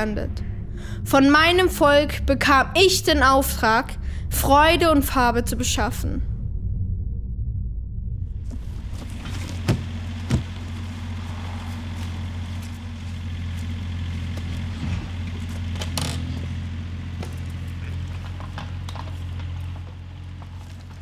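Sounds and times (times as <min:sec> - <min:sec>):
low engine hum: 0:00.0 - 0:21.0.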